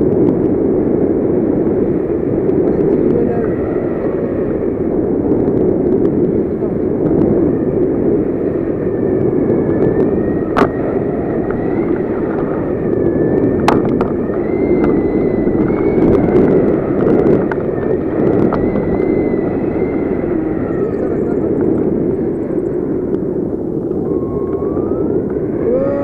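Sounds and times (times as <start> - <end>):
wind buffeting microphone: 0.0 - 26.0
faint wavering whistle: 14.2 - 17.0, 24.0 - 26.0.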